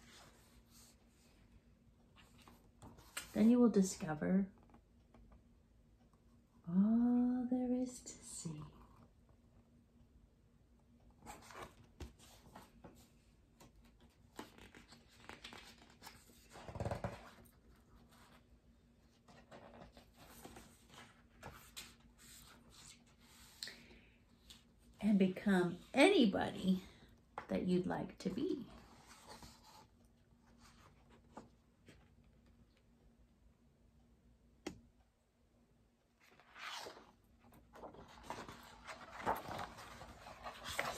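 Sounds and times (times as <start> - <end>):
book pages rustling: 0.0 - 3.6, 11.2 - 23.6, 28.6 - 32.3, 36.2 - 40.9
faint low hum: 0.0 - 40.9
book pages turning: 11.2 - 18.4, 36.2 - 40.9.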